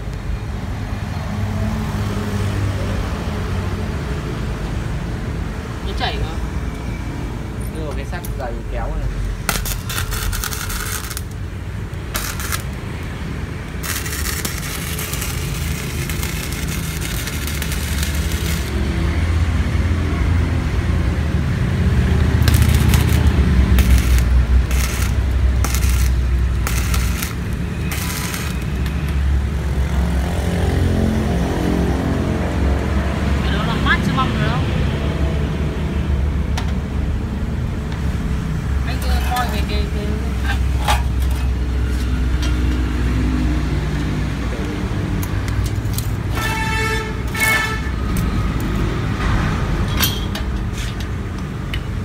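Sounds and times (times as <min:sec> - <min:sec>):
welder arc crackling: 0:09.2 - 0:19.2, 0:22.2 - 0:29.6.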